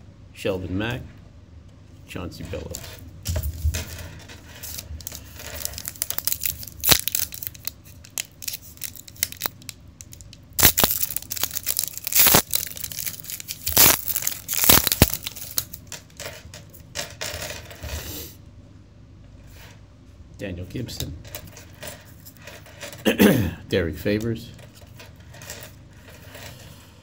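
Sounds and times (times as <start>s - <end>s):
foil wrapper crinkling and tearing: 4.6s - 15.9s.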